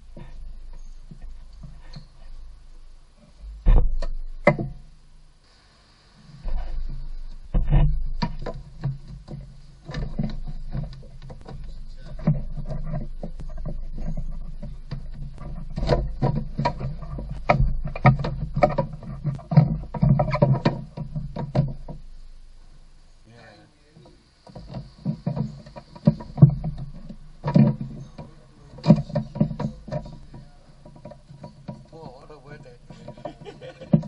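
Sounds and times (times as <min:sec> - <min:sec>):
plastic knocking and scraping: 0:03.5 - 0:04.8, 0:06.4 - 0:22.1, 0:24.4 - 0:34.0.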